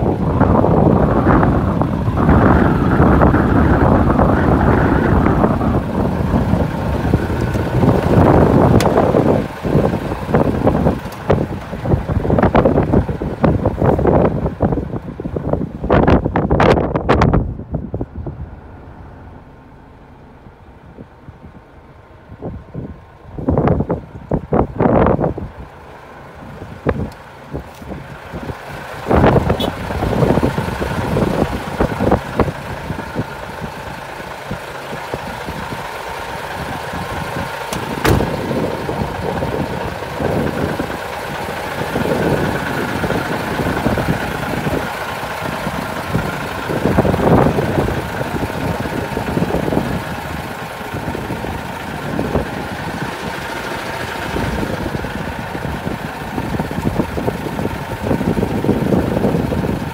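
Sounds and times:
truck diesel engine idling: 0:00.0 - 0:59.9
sharp knock: 0:38.0 - 0:38.4.

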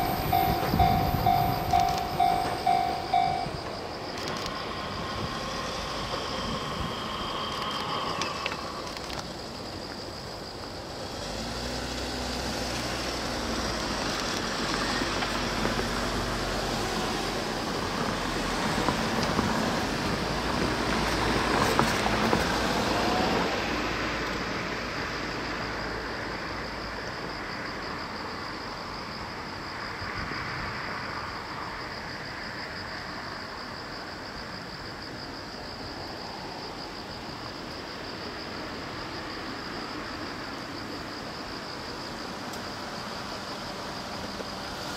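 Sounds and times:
steady high hiss: 0:00.0 - 0:20.4.

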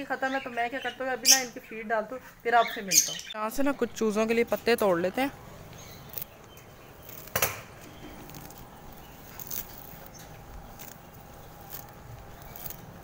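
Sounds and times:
grass rustling: 0:04.0 - 0:13.0
grass being torn by hand: 0:06.0 - 0:13.0.

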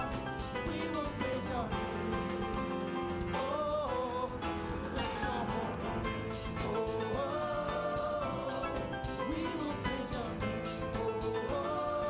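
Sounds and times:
bass guitar: 0:00.0 - 0:12.0
drum kit steady beat: 0:00.0 - 0:12.0
keyboard: 0:00.0 - 0:12.0
singers holding long notes: 0:03.4 - 0:12.0.

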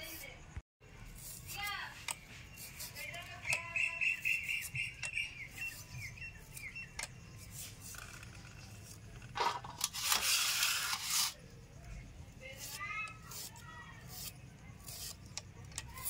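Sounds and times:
knife cutting onion: 0:01.0 - 0:08.0, 0:12.5 - 0:16.0
bird chirping: 0:02.0 - 0:08.6
rasping noise: 0:12.4 - 0:16.0.

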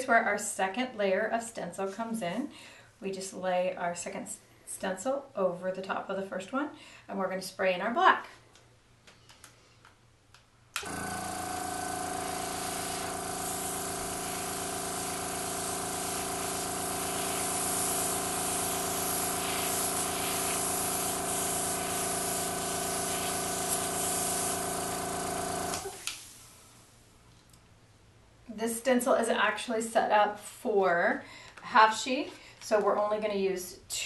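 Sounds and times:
motor hum: 0:10.8 - 0:26.1
airbrush hissing: 0:11.3 - 0:26.7.

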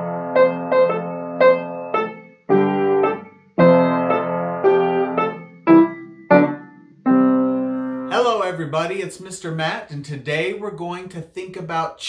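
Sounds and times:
bouncy piano chords: 0:00.0 - 0:08.9.

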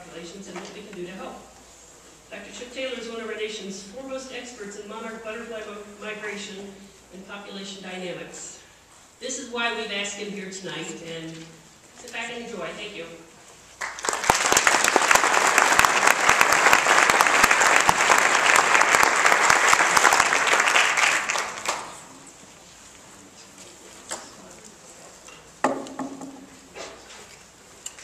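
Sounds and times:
audience applauding: 0:13.8 - 0:22.2.

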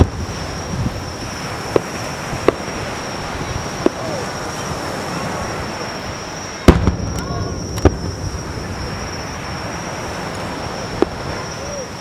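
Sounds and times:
steady hiss: 0:00.0 - 0:12.0
firework shells bursting: 0:01.2 - 0:04.3, 0:06.6 - 0:11.4.

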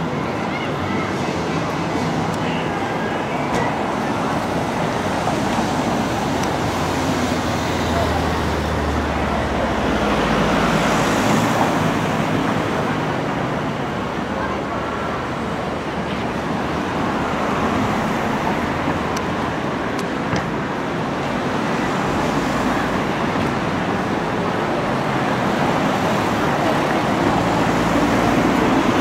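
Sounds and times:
steady road traffic: 0:00.0 - 0:29.0.

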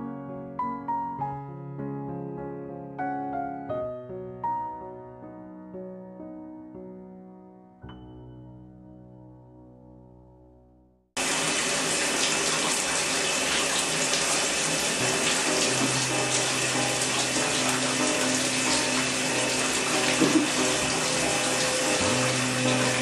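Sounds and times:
shower spray running: 0:11.2 - 0:23.0.

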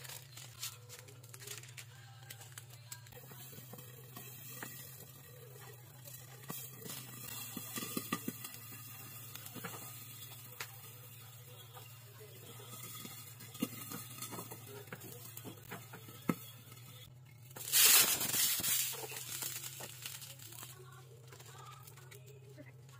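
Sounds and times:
egg frying with small pops: 0:03.1 - 0:11.2, 0:11.8 - 0:20.6
hissing burst of sizzle: 0:17.6 - 0:20.8.

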